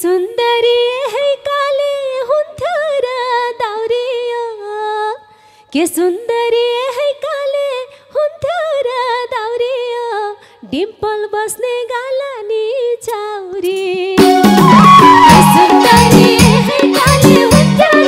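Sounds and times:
woman singing unaccompanied: 0:00.0 - 0:05.2, 0:05.8 - 0:18.0
band playing rhythmic accompaniment: 0:14.2 - 0:18.0.

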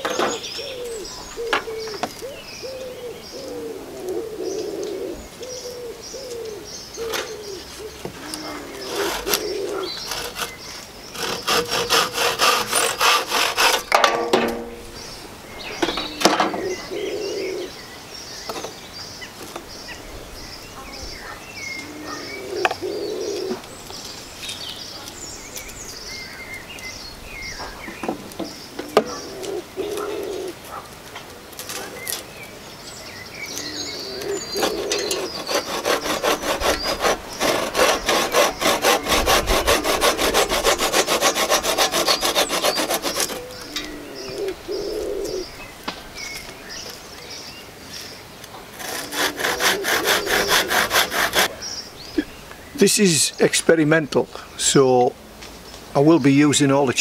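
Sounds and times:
small birds chirping: 0:00.0 - 0:14.0, 0:14.7 - 0:57.0
hand saw cutting a branch: 0:08.7 - 0:14.6, 0:34.2 - 0:43.6, 0:48.7 - 0:51.6.

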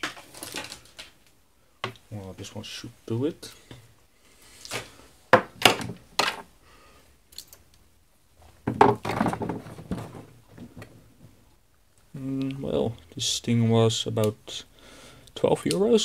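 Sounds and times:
rattling clatter of small objects: 0:00.0 - 0:01.2, 0:08.7 - 0:11.3.

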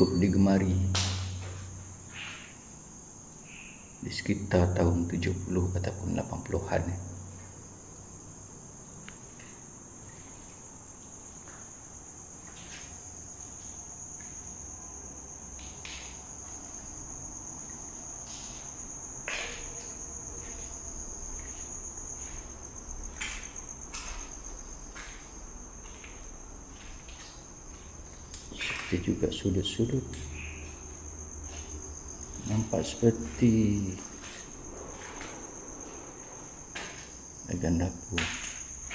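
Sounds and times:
crickets chirring: 0:00.0 - 0:38.9.

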